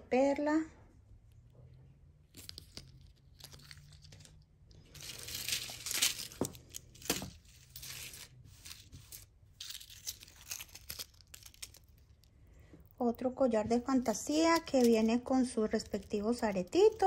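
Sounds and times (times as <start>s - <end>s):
packaging crinkling and tearing: 2.3s - 12.5s, 13.9s - 17.0s.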